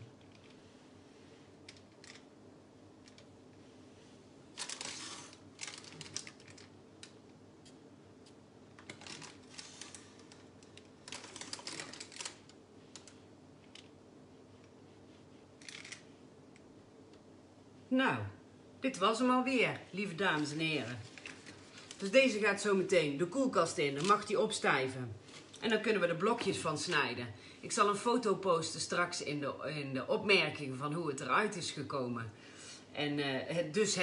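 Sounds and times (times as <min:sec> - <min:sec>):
faint steady hum: 0:00.0 - 0:34.0
baking paper crinkling: 0:04.6 - 0:06.8, 0:08.8 - 0:13.9, 0:20.0 - 0:22.7.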